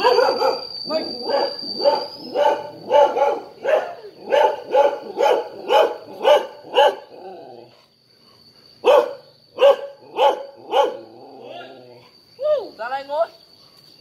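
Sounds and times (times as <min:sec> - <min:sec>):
dog barking: 0:00.0 - 0:07.2, 0:08.8 - 0:11.6.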